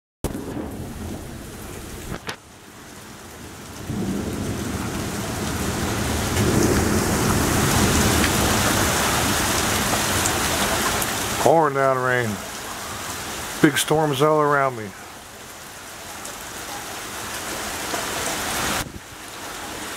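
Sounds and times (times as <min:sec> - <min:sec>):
thunder rumble: 0:00.2 - 0:02.4, 0:03.2 - 0:11.4
torrential rain pouring: 0:00.3 - 0:19.9.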